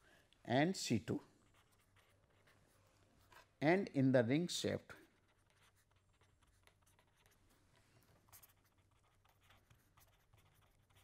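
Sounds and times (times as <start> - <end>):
pen scratching on paper: 1.4 - 3.6, 5.0 - 11.0.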